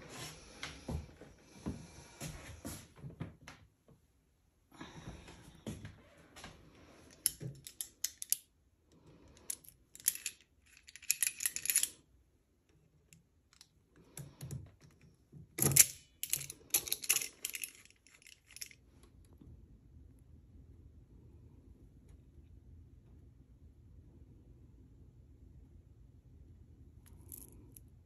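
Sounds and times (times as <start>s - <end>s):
metal chain links clicking: 9.5s - 12.0s, 15.6s - 18.8s.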